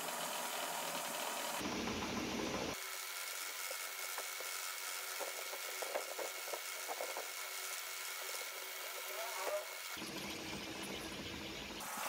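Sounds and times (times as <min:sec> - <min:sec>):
drill crackling as it cuts metal: 0:02.8 - 0:10.0.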